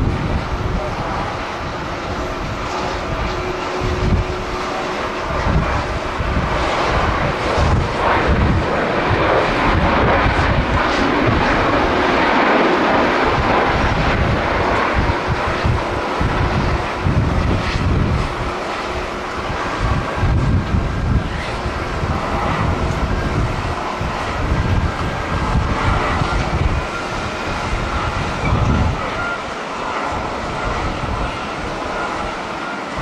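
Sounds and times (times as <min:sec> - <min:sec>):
jet engines in reverse thrust: 0:00.0 - 0:33.0
wind buffeting microphone: 0:00.0 - 0:33.0.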